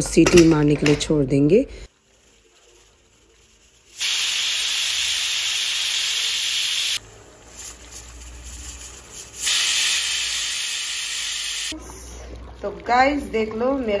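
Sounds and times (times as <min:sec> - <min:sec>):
pressure cooker whistle hissing steam: 0:04.0 - 0:07.0, 0:09.4 - 0:11.7.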